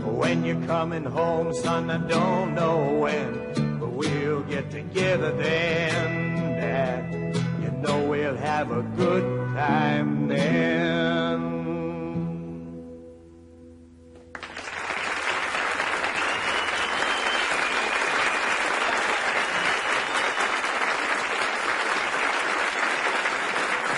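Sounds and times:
audience applause: 14.3s - 23.9s.

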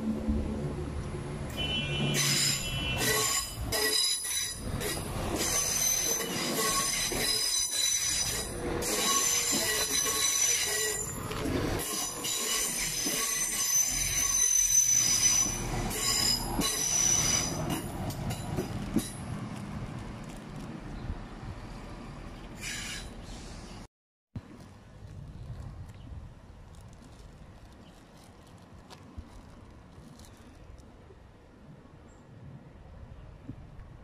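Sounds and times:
carriages rumbling: 0.0s - 25.0s
train wheels squealing: 2.1s - 18.4s, 22.6s - 23.8s.

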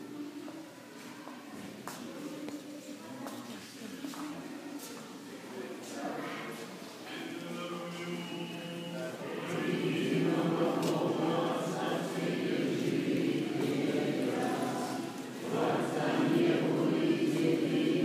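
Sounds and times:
choir chanting: 7.2s - 18.0s.

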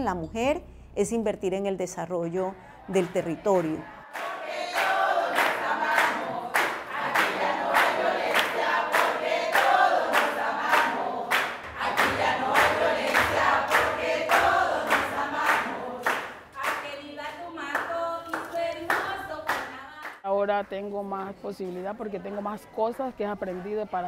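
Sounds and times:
group of voices singing: 2.5s - 20.2s
steady handclaps: 3.0s - 20.7s.

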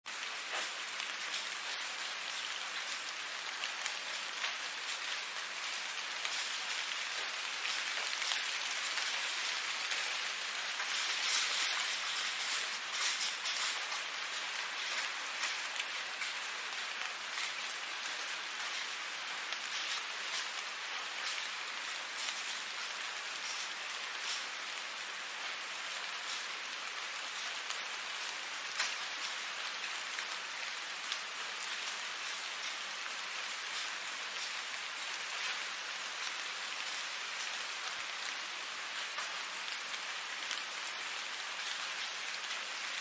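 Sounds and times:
steady rain falling: 0.0s - 43.0s.

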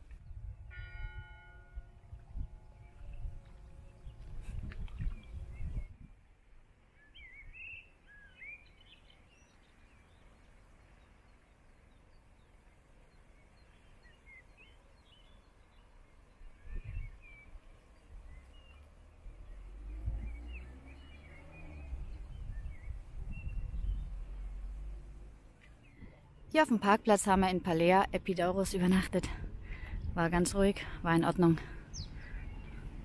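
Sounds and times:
small birds chirping: 2.7s - 6.1s, 6.9s - 33.0s
low rumbles: 18.2s - 33.0s.

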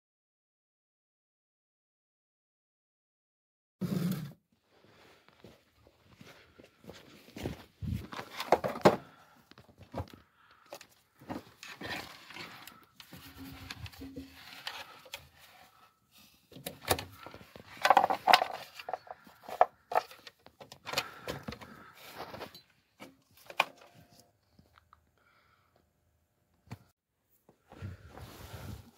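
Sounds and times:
footsteps crunching in snow: 4.8s - 8.3s
equipment rustling and clicking: 16.5s - 24.0s.

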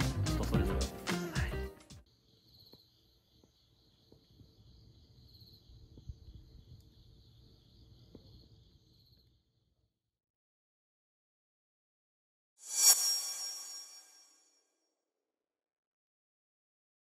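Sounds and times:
insects trilling: 2.3s - 9.4s.

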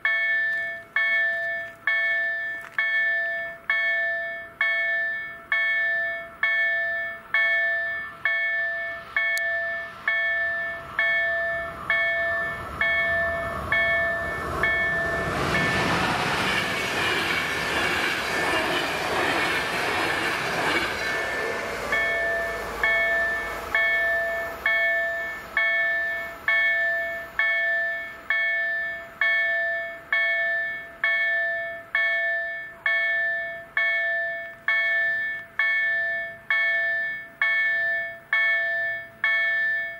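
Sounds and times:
level crossing warning bell: 0.0s - 39.9s
train wheels rushing on rails: 7.4s - 31.4s.

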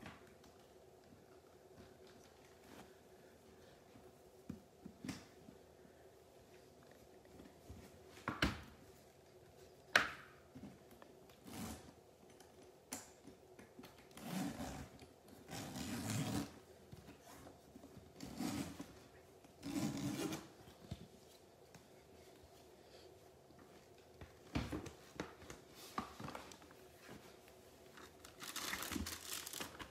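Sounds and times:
metal zipper pulled open: 14.2s - 14.9s, 15.5s - 16.6s, 19.6s - 20.5s.

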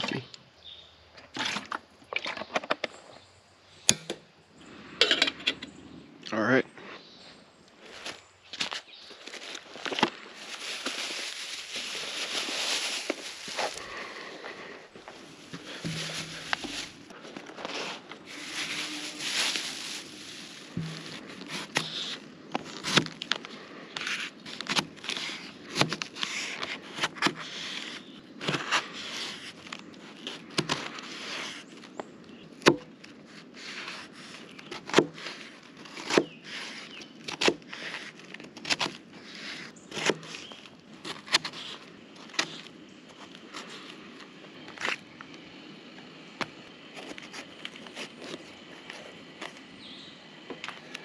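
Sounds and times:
rustling: 7.8s - 31.7s.

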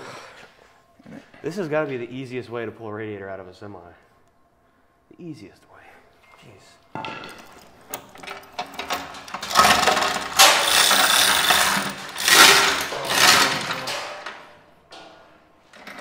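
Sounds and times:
steel chain rattling through hoist: 8.2s - 14.3s.

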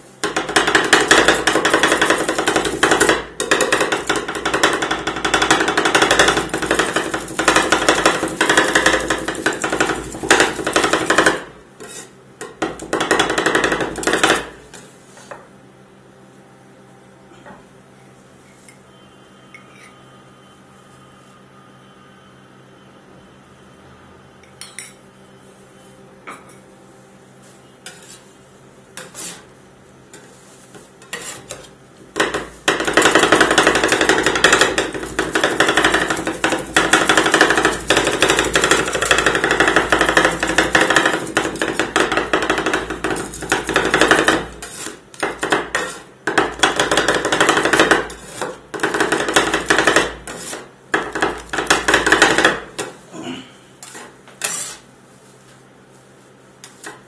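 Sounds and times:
metal scrapers on steel plate: 29.0s - 29.5s, 31.0s - 31.7s, 42.6s - 46.1s, 47.2s - 48.6s, 49.3s - 50.7s, 53.8s - 54.9s.

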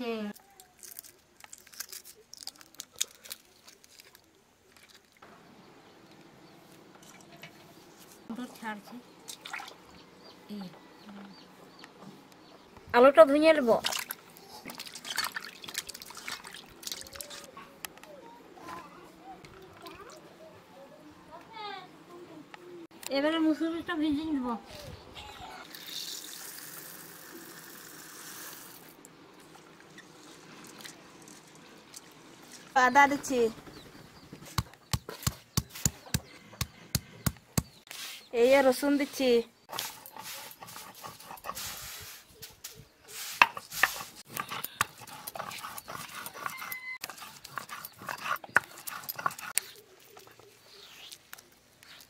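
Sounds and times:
water pouring into a steel bowl: 25.7s - 28.9s.

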